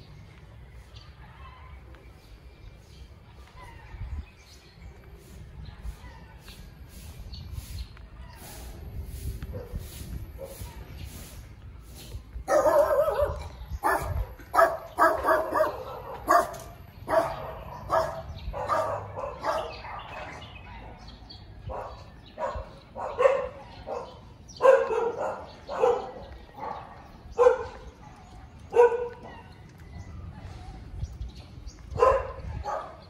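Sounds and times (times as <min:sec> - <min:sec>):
dog barking: 0:12.5 - 0:21.0, 0:21.7 - 0:28.0, 0:28.7 - 0:29.5, 0:31.9 - 0:33.0.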